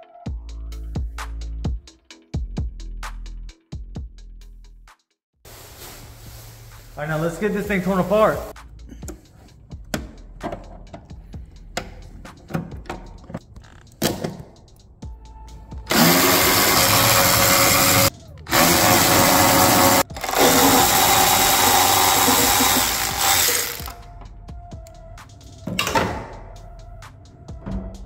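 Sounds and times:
cordless electric ratchet running: 15.9s - 24.0s.

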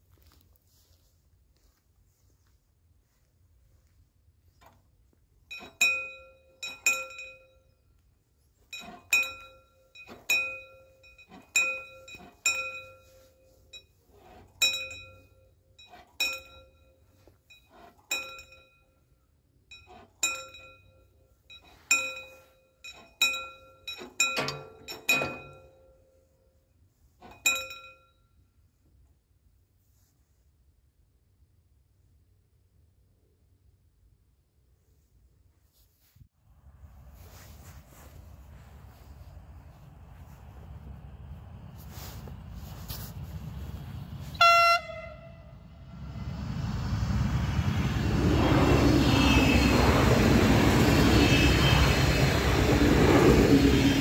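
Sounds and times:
level crossing warning bell: 5.4s - 28.6s, 41.8s - 46.3s, 47.6s - 54.0s
barrier clanking: 8.7s - 13.2s.

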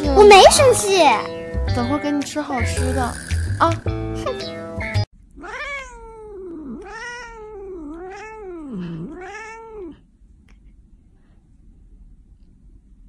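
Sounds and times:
cat yowling: 5.4s - 10.0s.

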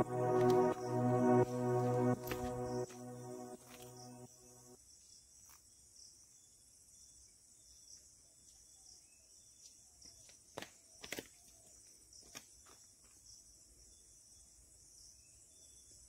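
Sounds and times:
background music: 0.0s - 4.8s.

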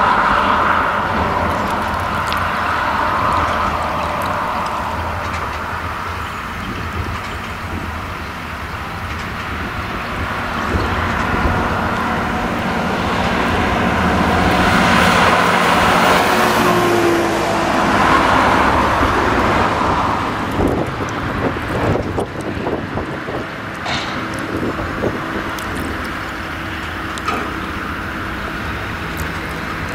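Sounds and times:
car passing by: 0.0s - 7.2s, 9.5s - 26.0s
tractor engine running: 0.0s - 29.9s.

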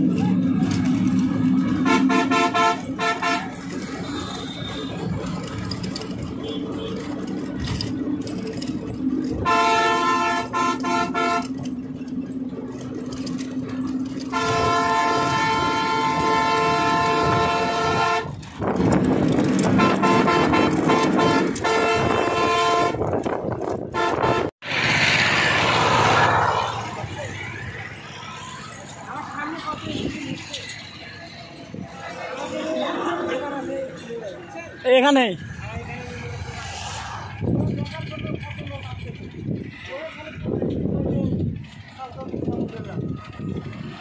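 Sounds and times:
bus engine hum and road noise: 0.0s - 44.0s
vehicle horn blasts: 1.7s - 5.2s, 9.4s - 11.7s, 14.2s - 18.4s, 19.6s - 23.3s, 23.9s - 24.5s
rushing noise: 22.9s - 33.3s.

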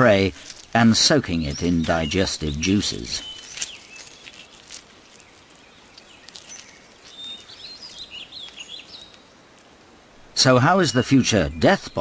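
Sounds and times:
low steady hiss: 0.0s - 12.0s
small ticks: 3.2s - 9.7s.

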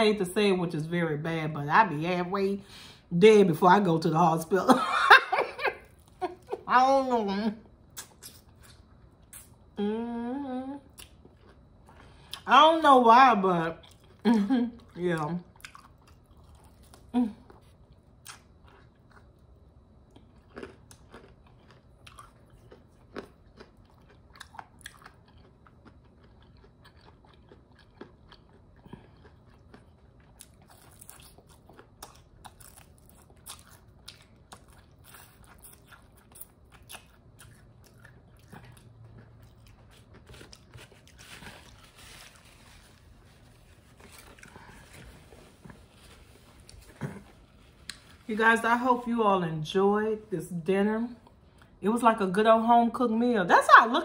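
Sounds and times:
crunching of chewing: 10.9s - 12.5s, 13.8s - 14.2s, 15.5s - 45.8s.

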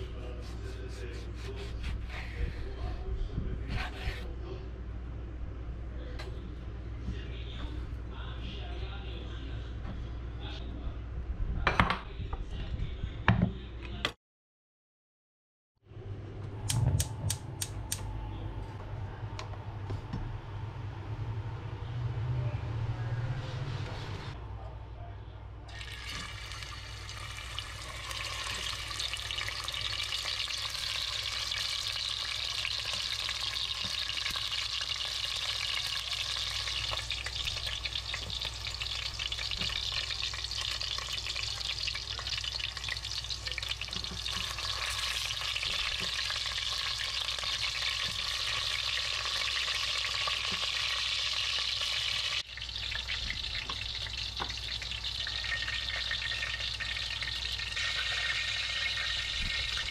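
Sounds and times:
meat sizzling in hot oil: 25.7s - 59.9s.

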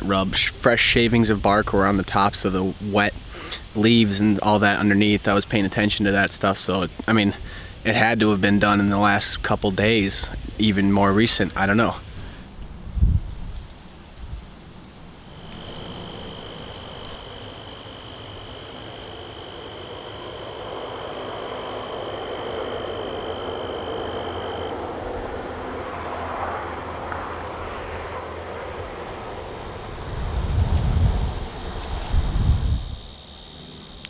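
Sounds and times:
insect noise: 0.0s - 34.0s
low rumble on microphone: 9.5s - 33.2s
high-pitched insect trill: 14.6s - 34.0s.

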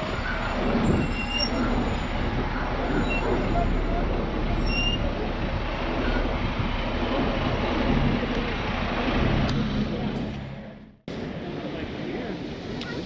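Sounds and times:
wind on microphone: 0.0s - 3.4s
bus engine humming: 0.0s - 13.0s
road traffic: 0.0s - 13.0s.

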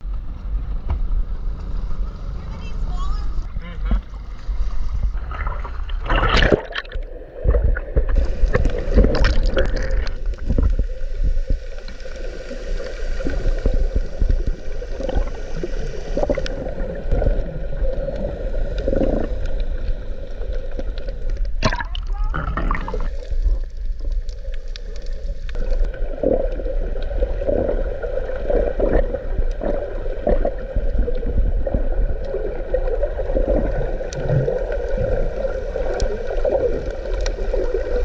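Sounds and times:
muffled underwater gurgling: 12.9s - 24.3s, 25.5s - 38.0s.

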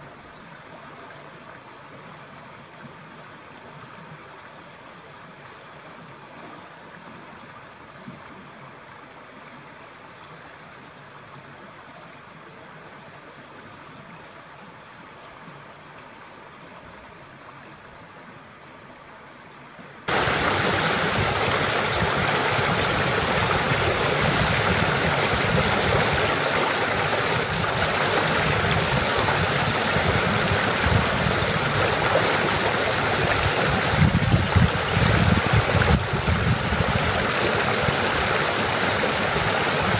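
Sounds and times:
stream flowing gently: 0.0s - 39.9s
water rushing over rock ledge: 20.1s - 39.9s.

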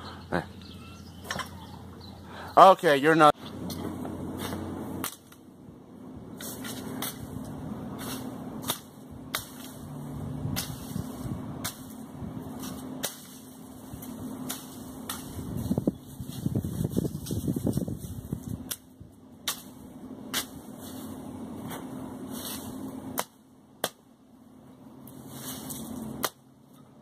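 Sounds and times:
machete chopping branches: 3.5s - 5.5s, 6.4s - 24.1s, 25.0s - 26.5s.

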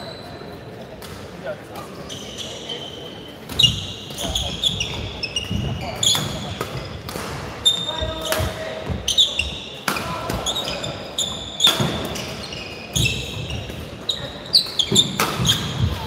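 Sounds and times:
shoes squeaking on court: 0.0s - 0.8s, 1.8s - 16.0s
racket hitting shuttlecock: 14.9s - 16.0s.

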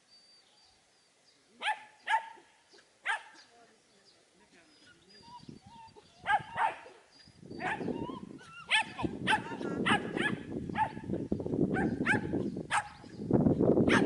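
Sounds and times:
dog barking: 1.6s - 2.4s, 3.1s - 3.4s, 6.2s - 7.0s, 7.6s - 7.9s, 8.7s - 11.1s, 11.8s - 13.0s.

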